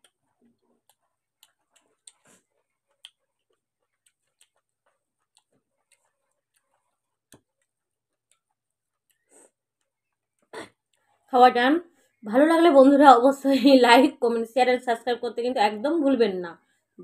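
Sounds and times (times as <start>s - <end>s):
chewing mouth sounds: 0.0s - 11.1s
fingers on a plate: 0.0s - 11.1s.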